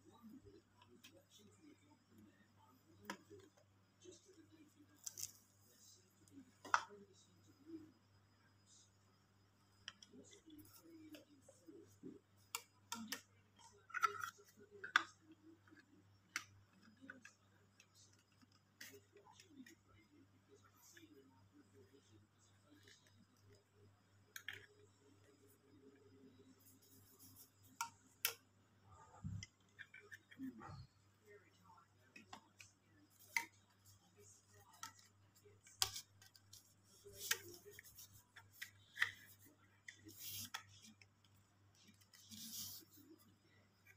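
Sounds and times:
faint low hum: 0.0 - 43.9
plastic clicks and knocks on tile: 12.4 - 19.8.

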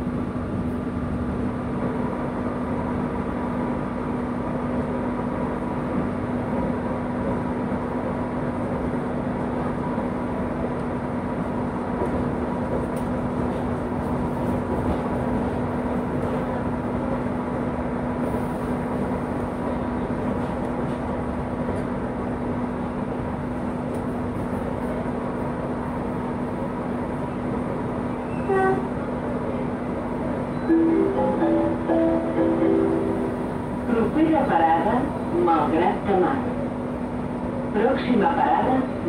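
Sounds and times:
train carriage running noise: 0.0 - 39.0
high tone: 30.7 - 33.8.

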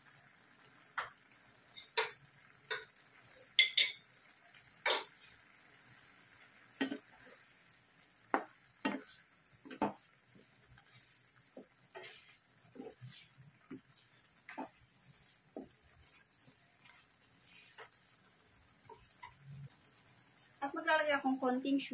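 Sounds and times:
utensils knocking against a pan: 1.0 - 2.9, 3.6 - 4.0, 4.8 - 5.1, 8.3 - 9.1, 9.7 - 10.0
wooden spatula stirring shrimp: 4.8 - 21.9.

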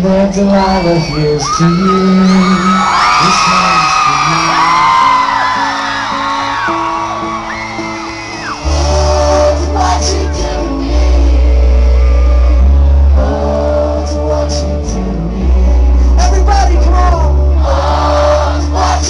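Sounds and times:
crowd cheering and whooping: 0.3 - 14.0, 15.6 - 19.0
loud bass line: 6.2 - 19.0.

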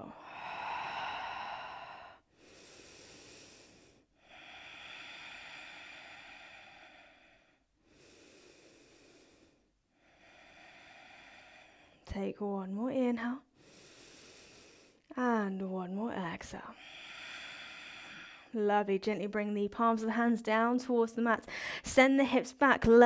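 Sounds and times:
woman breathing slowly: 0.0 - 12.1, 13.4 - 15.1, 16.6 - 18.6, 21.5 - 21.9.

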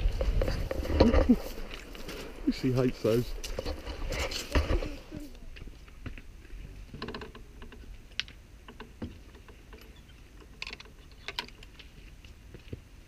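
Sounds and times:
wooden gate clicking and knocking: 6.9 - 11.7.

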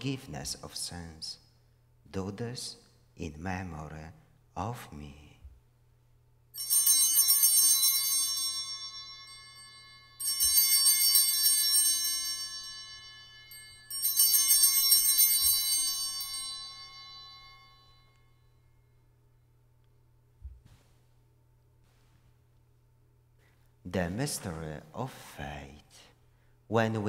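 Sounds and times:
altar bells jingling: 6.6 - 19.0.

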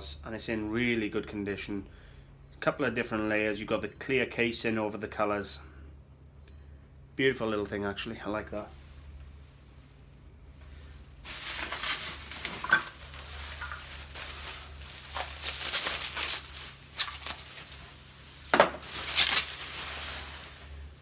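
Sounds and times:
bubble wrap rustling and crinkling: 11.1 - 21.0.

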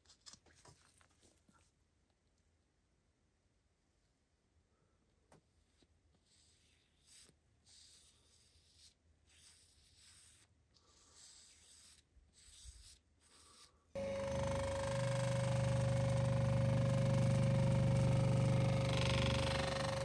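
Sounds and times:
gloved fingers rubbing metal: 5.6 - 13.9
buffing machine motor whine: 14.0 - 20.0.

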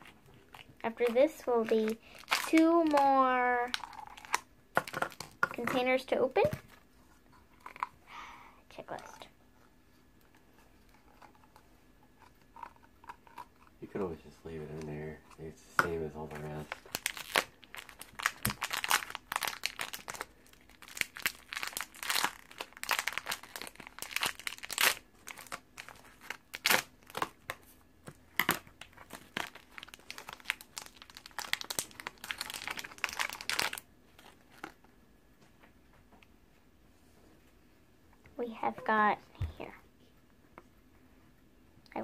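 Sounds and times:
plastic wrapper crinkling: 0.0 - 6.5, 16.3 - 27.7, 28.3 - 34.9.

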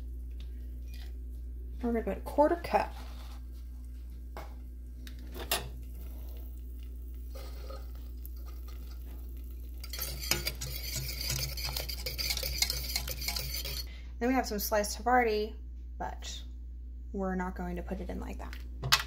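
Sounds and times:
steady low hum: 0.0 - 19.0
whisk scraping metal pot: 9.8 - 13.9.

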